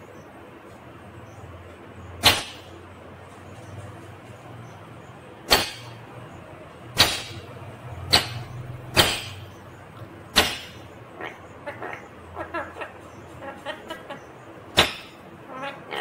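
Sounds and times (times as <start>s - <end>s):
parrot chirps: 10.4s - 16.0s.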